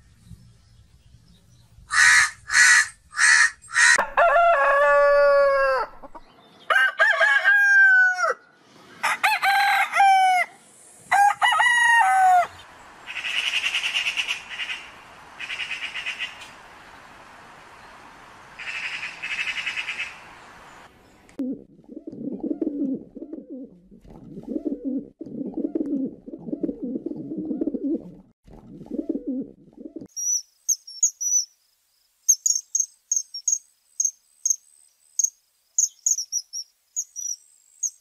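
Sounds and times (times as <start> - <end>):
crow cawing: 1.9 - 4.0
rooster crowing: 1.9 - 12.6.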